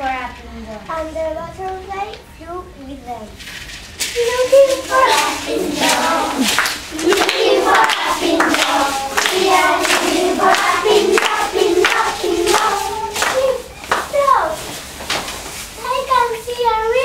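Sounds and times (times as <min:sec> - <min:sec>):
girls singing in unison: 0:04.7 - 0:13.8.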